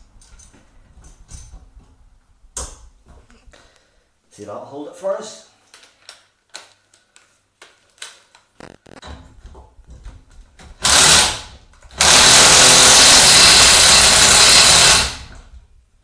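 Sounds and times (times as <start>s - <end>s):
impact wrench hammering: 10.8s - 15.4s.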